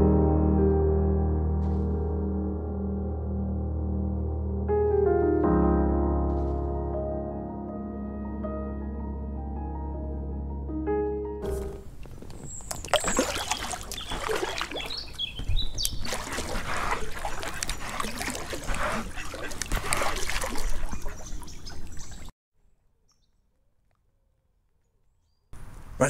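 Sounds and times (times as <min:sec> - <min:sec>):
paddle splashing: 0:11.4 - 0:22.3
water dripping: 0:11.8 - 0:22.3.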